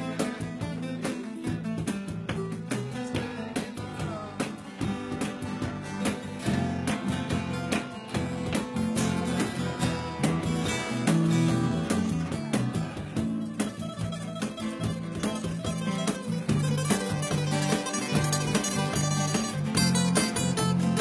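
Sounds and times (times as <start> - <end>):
acoustic guitar: 0.0 - 21.0
electric bass line: 0.0 - 21.0.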